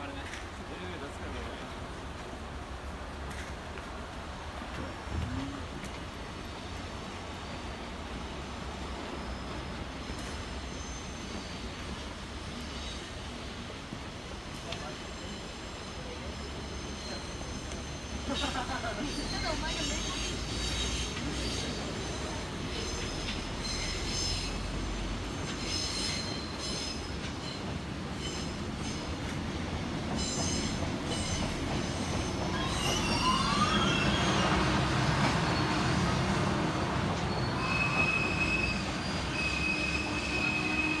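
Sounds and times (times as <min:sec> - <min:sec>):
train wheels squealing: 0:08.8 - 0:13.6, 0:14.7 - 0:29.4, 0:30.1 - 0:41.0.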